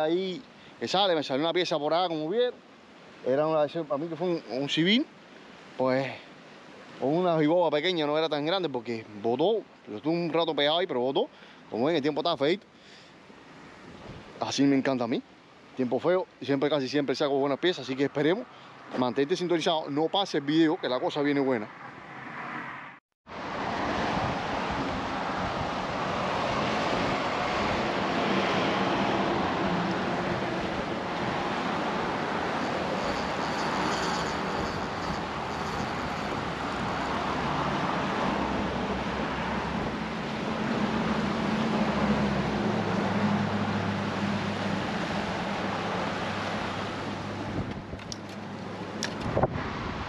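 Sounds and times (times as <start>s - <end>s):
wind noise: 13.7s - 14.4s, 23.5s - 44.1s, 44.8s - 50.0s
road traffic: 17.9s - 19.6s, 20.3s - 50.0s.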